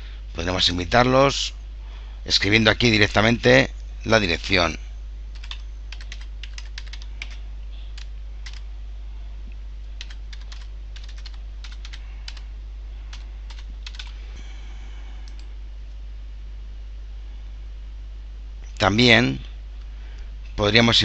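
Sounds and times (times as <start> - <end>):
steady low hum: 0.0 - 21.0
computer keyboard typing: 5.3 - 7.4, 8.0 - 8.6, 10.0 - 12.5, 13.1 - 14.2.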